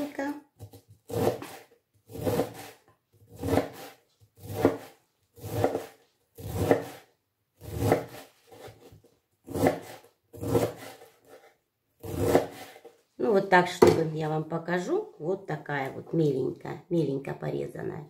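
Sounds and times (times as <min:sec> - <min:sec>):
knife shredding cabbage on board: 0:00.6 - 0:13.0.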